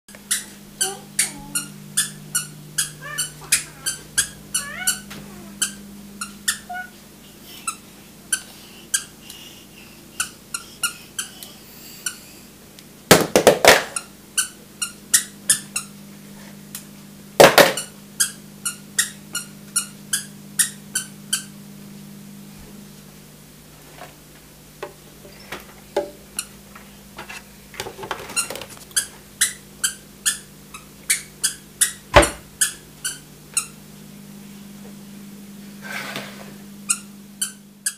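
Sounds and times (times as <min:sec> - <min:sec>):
squeaker shoes squeaking: 0:00.1 - 0:07.0, 0:10.2 - 0:12.3, 0:14.0 - 0:15.9, 0:17.8 - 0:21.5, 0:25.2 - 0:25.6, 0:28.3 - 0:33.8, 0:36.9 - 0:37.9.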